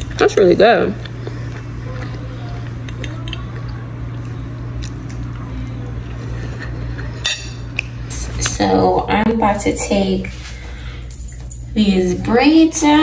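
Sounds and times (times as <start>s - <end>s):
person chewing food: 0.0s - 8.5s
steady low hum: 0.0s - 13.0s.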